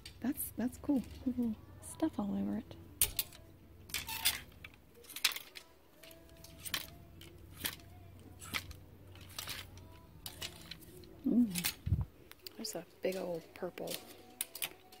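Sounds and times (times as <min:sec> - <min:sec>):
plastic hangers clicking on rack: 0:03.0 - 0:15.0.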